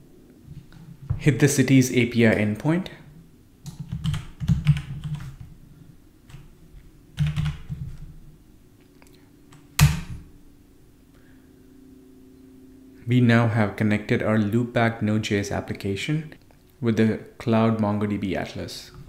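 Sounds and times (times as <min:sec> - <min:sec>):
typing on keyboard: 0:03.6 - 0:05.5, 0:07.2 - 0:07.8.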